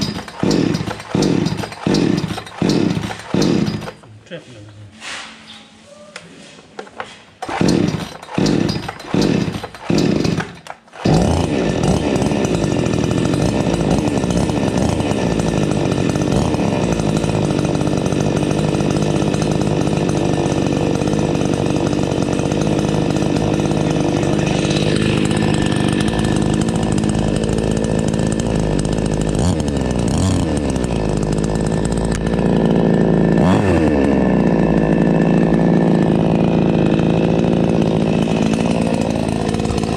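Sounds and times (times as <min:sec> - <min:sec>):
chainsaw engine idling: 0:00.0 - 0:04.1, 0:07.4 - 0:39.9
chainsaw throttle blips: 0:00.0 - 0:04.1, 0:07.4 - 0:39.9
starter cord yanked: 0:00.0 - 0:04.2, 0:06.8 - 0:12.7.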